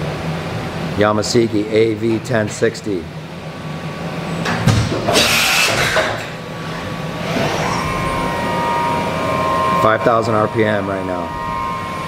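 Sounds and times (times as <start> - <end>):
machining center humming: 0.0 - 12.0
spindle whine: 3.1 - 12.0
machine thump: 4.4 - 6.4
short hissing whoosh: 5.1 - 8.1.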